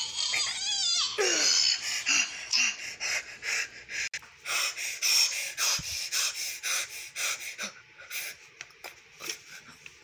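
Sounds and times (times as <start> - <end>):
person panting: 1.2 - 8.5.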